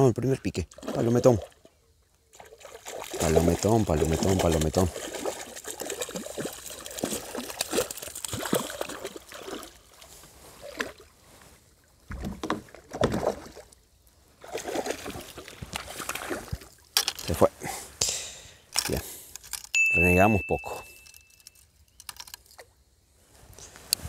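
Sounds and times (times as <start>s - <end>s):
water splashing: 0.6s - 11.2s, 12.1s - 13.8s, 14.4s - 17.1s.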